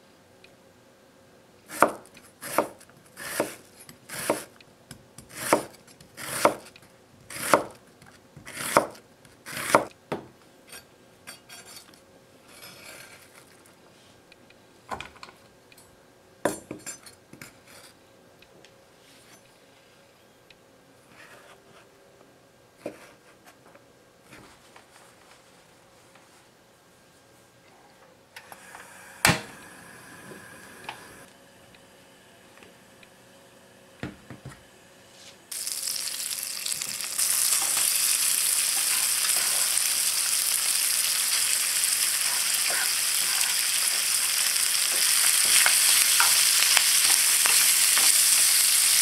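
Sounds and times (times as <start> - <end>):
knife slicing onion on board: 1.7 - 4.5, 5.2 - 7.8, 8.4 - 9.9.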